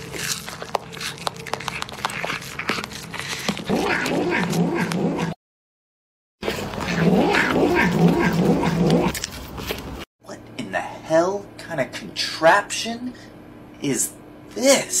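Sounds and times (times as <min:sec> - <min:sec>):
cat growly mews while eating: 0:03.6 - 0:05.4, 0:06.8 - 0:09.2.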